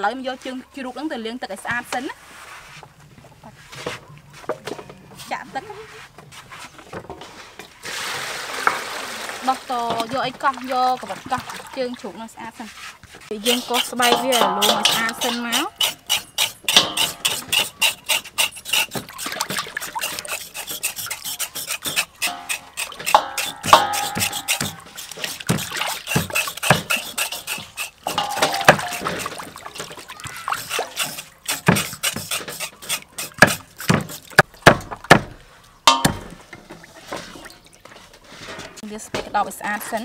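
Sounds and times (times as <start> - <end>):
knives scraping pork skin: 13.3 - 29.4, 30.3 - 34.5.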